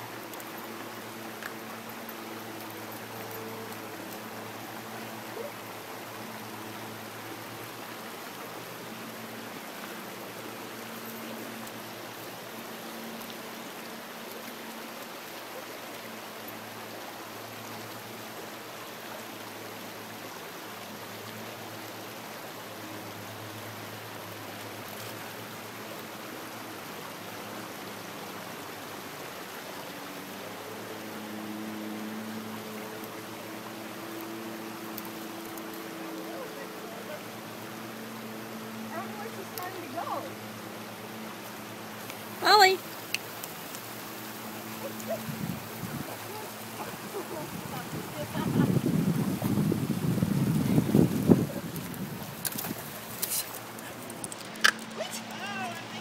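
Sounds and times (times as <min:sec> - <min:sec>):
water flowing over rocks: 0:00.0 - 0:56.0.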